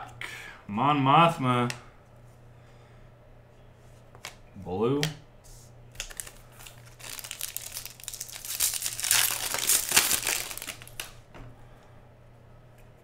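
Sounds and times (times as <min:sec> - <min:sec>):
foil wrapper crinkling and tearing: 0:06.0 - 0:11.2.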